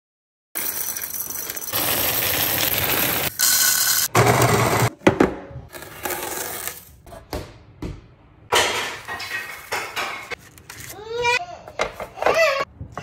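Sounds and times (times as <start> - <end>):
kitchen things clinking and rattling: 8.5 - 10.5.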